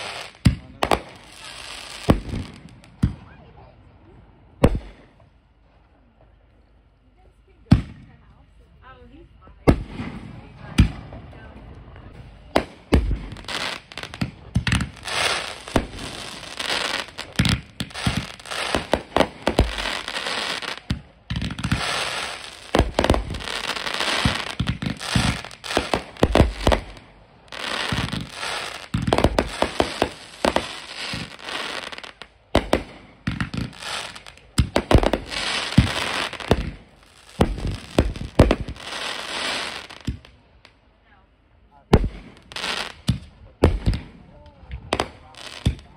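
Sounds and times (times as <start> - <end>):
fireworks crackle: 0.0 - 3.4, 12.0 - 40.8, 41.9 - 45.9
fireworks bangs: 0.0 - 3.7, 4.6 - 5.3, 9.6 - 40.3, 41.9 - 45.9.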